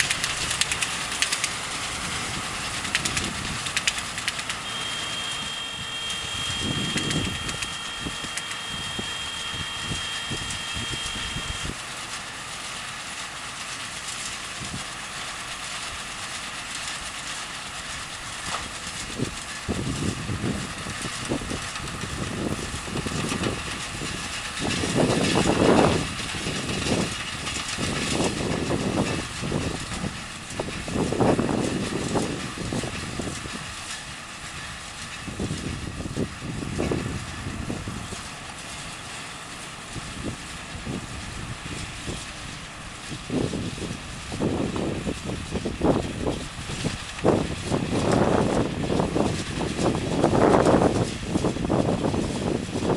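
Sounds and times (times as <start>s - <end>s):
tractor engine running under load: 0.0s - 52.9s
wind noise on microphone: 2.0s - 3.8s, 5.2s - 11.8s, 18.9s - 33.9s, 35.0s - 38.3s, 39.9s - 52.9s.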